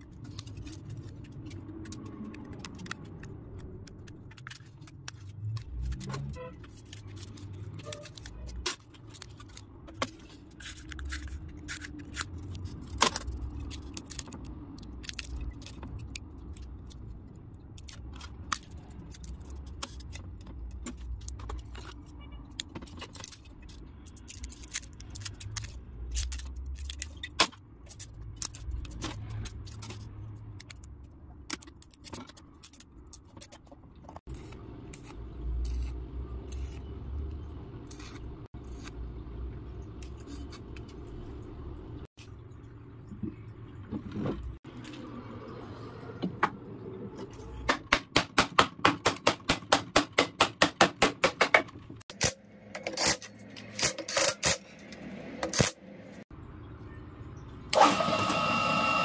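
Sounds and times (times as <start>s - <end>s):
metallic wire clicks and scrapes: 0.0s - 39.1s.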